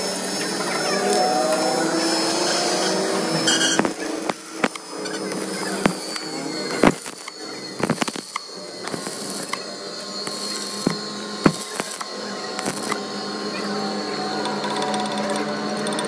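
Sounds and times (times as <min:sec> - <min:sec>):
welding arc crackling: 0:02.4 - 0:13.0
sharp welding pops: 0:03.6 - 0:09.6, 0:10.2 - 0:13.0.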